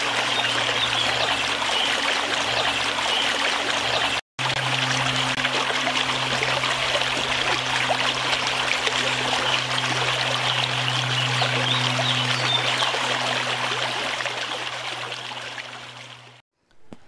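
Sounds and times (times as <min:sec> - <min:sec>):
steady low hum: 0:04.4 - 0:16.9.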